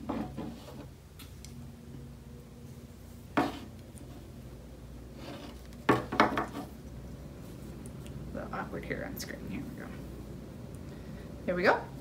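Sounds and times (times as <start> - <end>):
steady low hum: 0.0 - 12.0
wooden hoop turned on table: 3.4 - 4.2, 5.2 - 6.8.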